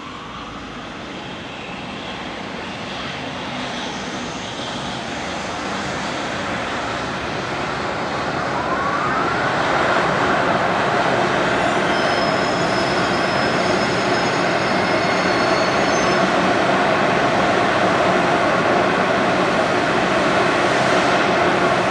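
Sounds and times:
short rising whine: 7.4s - 13.4s.

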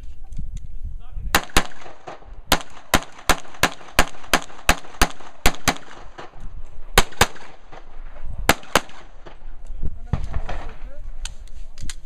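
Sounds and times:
handgun shots: 1.4s - 6.4s, 7.0s - 7.8s.

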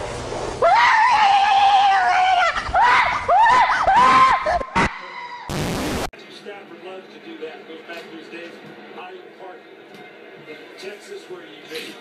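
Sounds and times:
high-pitched cries: 0.6s - 5.6s.

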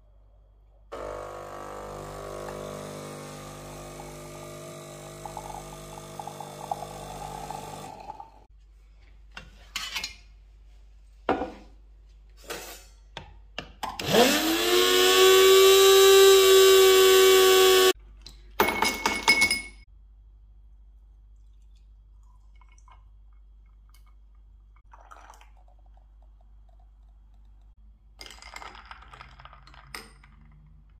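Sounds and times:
drink mixer motor running: 0.9s - 8.4s, 14.0s - 18.0s
ice clinking: 2.4s - 8.4s, 24.9s - 27.0s, 28.2s - 30.8s.

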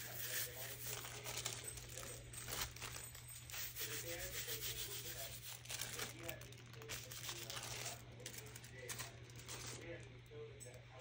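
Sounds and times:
crinkly rustling: 0.2s - 3.9s, 5.1s - 10.9s.

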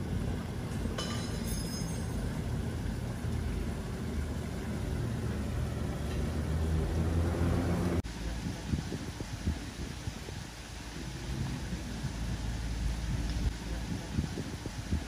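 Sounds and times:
passing vehicle rumble: 2.0s - 8.4s.

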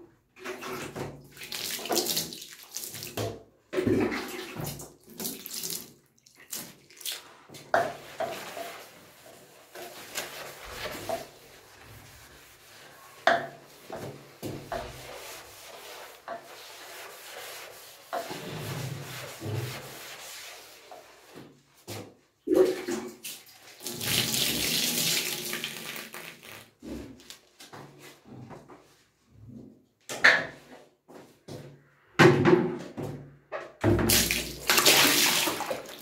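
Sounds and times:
sponge scrubbing bathtub: 0.2s - 29.8s, 33.9s - 36.0s
water splashing: 34.1s - 36.0s.

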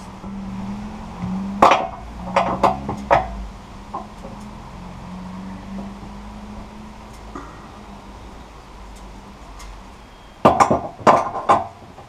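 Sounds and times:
steady low hum: 0.0s - 10.4s
wooden boards knocking together: 1.6s - 4.3s, 10.4s - 12.0s.

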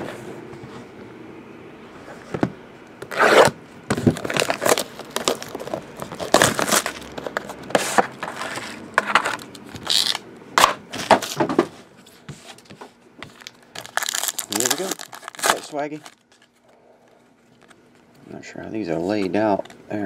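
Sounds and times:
plastic wrap tearing and crinkling: 3.1s - 7.7s, 9.8s - 10.2s, 13.3s - 16.4s.

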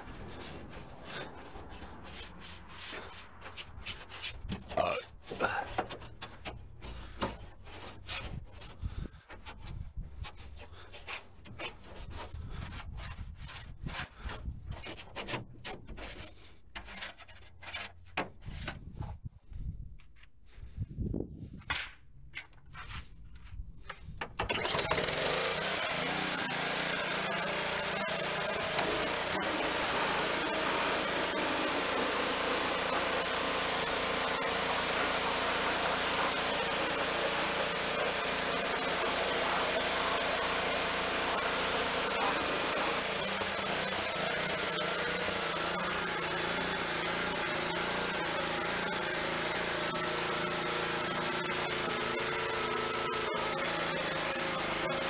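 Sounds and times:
hand scrubbing a surface: 0.0s - 18.7s.

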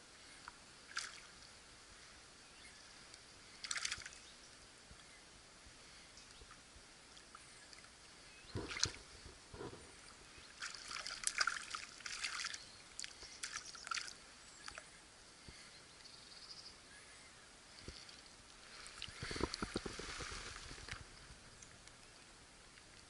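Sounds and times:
fish splashing water: 3.6s - 4.2s, 10.6s - 14.2s.

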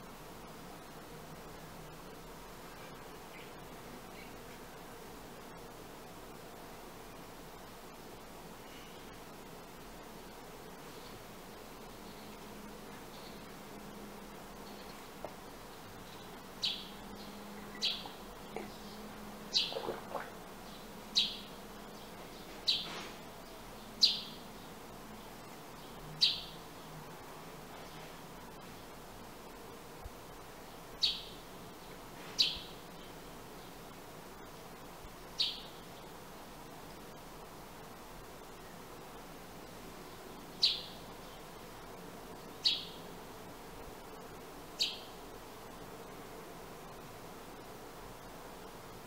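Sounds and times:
steady hiss: 0.0s - 49.0s
sparrow chirping: 15.8s - 20.0s, 20.6s - 24.7s, 25.8s - 26.6s, 31.0s - 31.4s, 32.4s - 33.1s, 35.4s - 36.1s, 40.6s - 41.0s, 42.6s - 43.0s, 44.8s - 45.2s.

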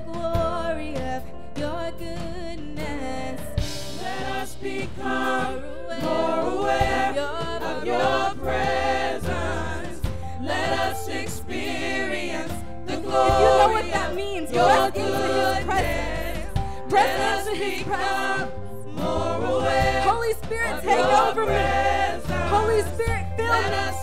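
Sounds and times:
musical accompaniment: 0.0s - 24.0s
group singing gospel in harmony: 3.6s - 24.0s.

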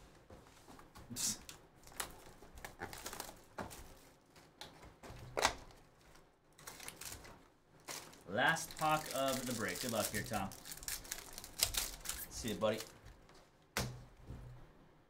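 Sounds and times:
foil card pack crinkling: 1.8s - 4.2s, 5.4s - 13.0s.

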